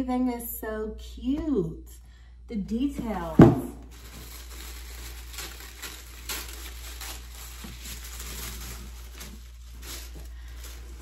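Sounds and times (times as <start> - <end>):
tissue paper rustling: 3.2 - 11.0.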